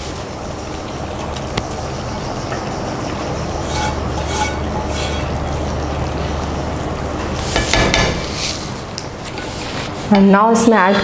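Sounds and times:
spatula scraping pan: 0:03.4 - 0:05.8.

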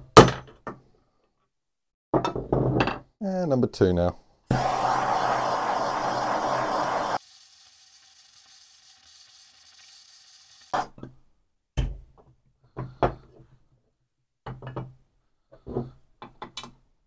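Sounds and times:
gas torch flame hissing: 0:04.5 - 0:10.8.

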